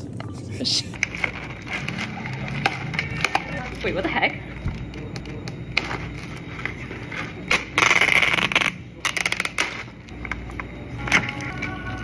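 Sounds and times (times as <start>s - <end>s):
ice cubes clinking in plastic cups: 1.0s - 3.9s.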